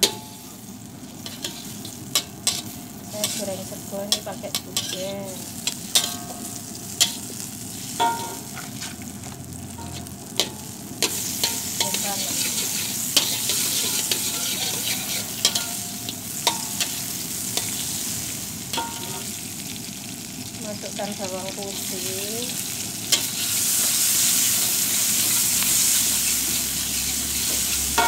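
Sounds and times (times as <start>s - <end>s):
margarine sizzling in a wok: 0.0s - 28.0s
metal spatula scraping a pan: 1.2s - 7.2s, 9.8s - 17.0s.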